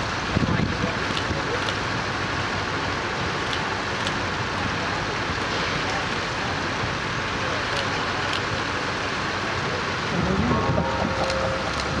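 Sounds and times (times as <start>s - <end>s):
water gushing and splashing: 0.0s - 12.0s.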